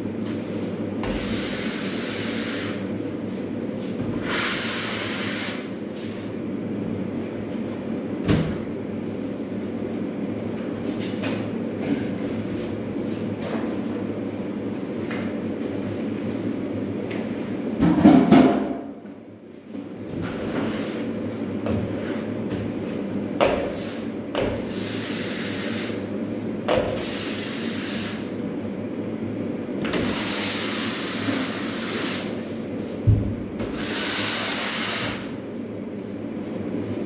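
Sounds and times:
steady low hum: 0:00.0 - 0:37.0
tool scraping plasterboard wall: 0:29.9 - 0:32.6, 0:33.6 - 0:35.3.

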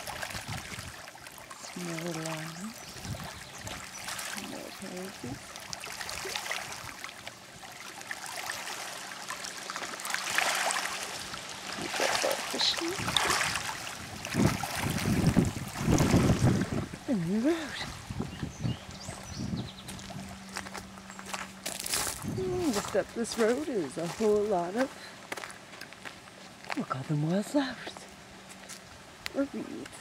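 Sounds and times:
waves lapping on rocky shore: 0:00.0 - 0:18.4.

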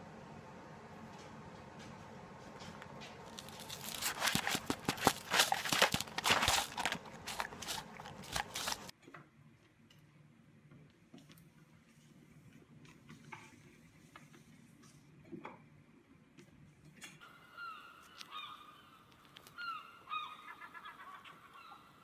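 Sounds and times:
dog crunching paper plate: 0:03.3 - 0:08.9.

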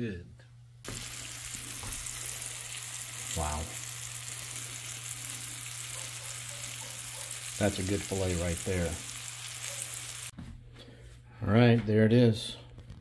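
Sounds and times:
fish sizzling in frying oil: 0:00.9 - 0:10.3.

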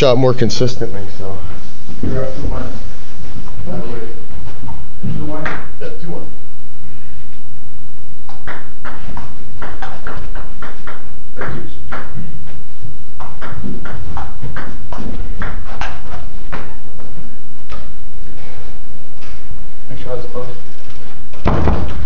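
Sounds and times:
feet thudding: 0:20.9 - 0:22.0.

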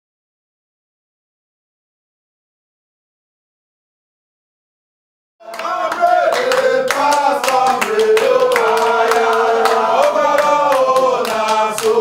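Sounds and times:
group of people singing: 0:05.4 - 0:12.0
rhythmic handclapping: 0:05.4 - 0:12.0.

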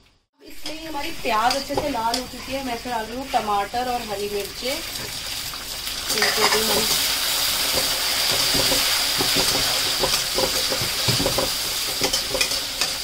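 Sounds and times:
vegetables sizzling in hot oil: 0:00.0 - 0:13.0
metal spatula scraping pan: 0:07.6 - 0:13.0.

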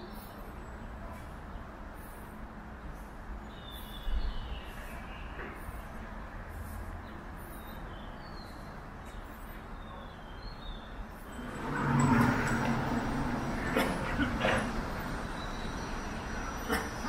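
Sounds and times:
background traffic hum: 0:00.0 - 0:17.0
birds chirping: 0:07.1 - 0:17.0
motor vehicle passing close: 0:11.3 - 0:17.0.

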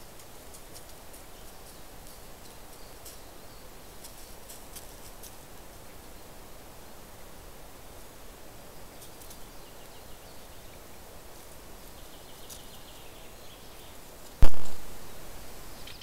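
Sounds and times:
loud thump: 0:14.4 - 0:14.8.

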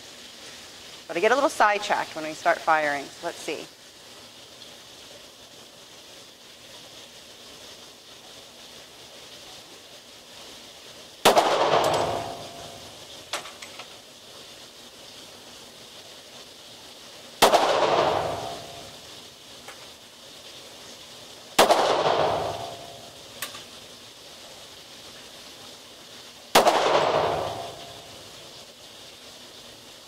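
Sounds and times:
pistol shots with echo: 0:11.2 - 0:12.7, 0:17.4 - 0:18.8, 0:21.6 - 0:23.0, 0:26.6 - 0:28.0.

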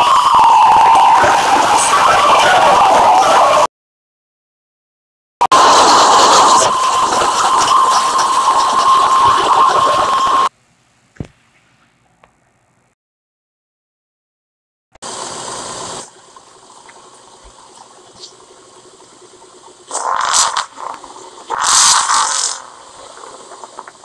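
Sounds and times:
car exhaust hissing: 0:15.0 - 0:24.0.

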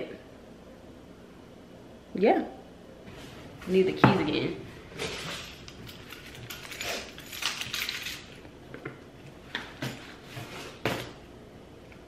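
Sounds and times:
keys jingling: 0:05.0 - 0:08.5.

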